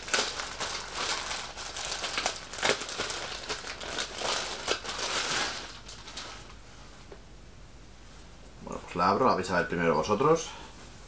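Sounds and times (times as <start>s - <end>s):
plastic bag crinkling: 0.0s - 6.6s.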